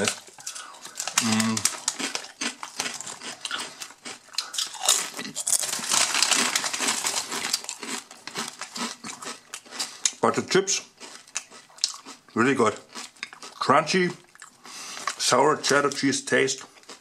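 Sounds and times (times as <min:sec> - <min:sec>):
foil chip bag crinkling: 0:00.0 - 0:10.0.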